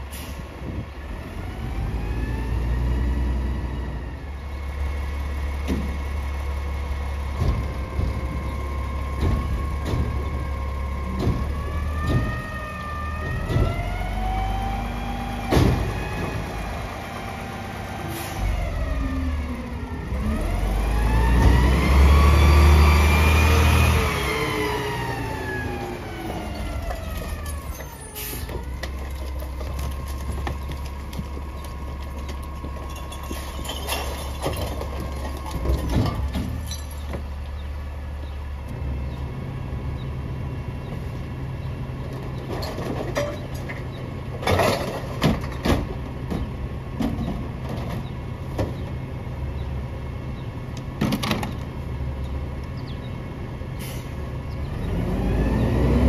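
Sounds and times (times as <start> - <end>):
garbage truck engine running: 2.6 - 56.0
recycling clanking into hopper: 26.4 - 37.4, 42.1 - 49.0.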